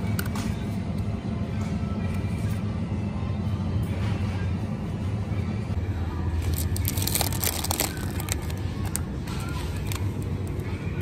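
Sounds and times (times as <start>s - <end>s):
background music: 0.0s - 11.0s
plastic packaging crinkling: 6.4s - 9.0s.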